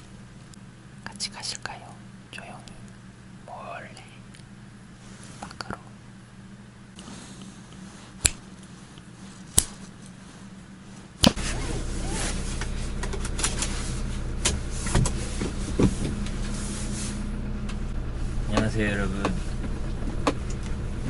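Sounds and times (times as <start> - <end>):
faint low hum: 0.0 - 21.0
car engine running: 11.3 - 21.0.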